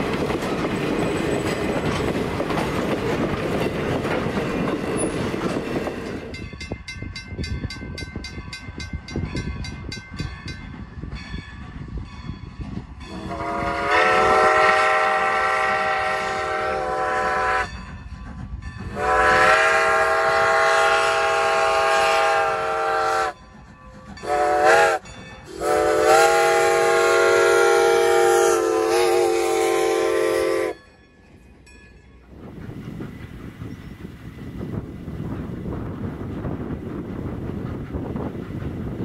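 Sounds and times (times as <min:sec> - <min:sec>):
train running noise: 0:00.0 - 0:39.0
steam locomotive whistle blasts: 0:13.1 - 0:17.8, 0:18.9 - 0:23.4, 0:24.2 - 0:30.8.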